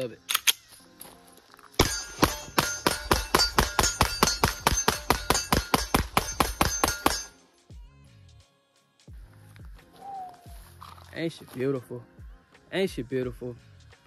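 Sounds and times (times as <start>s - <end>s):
rapid pistol shots: 1.8s - 7.3s.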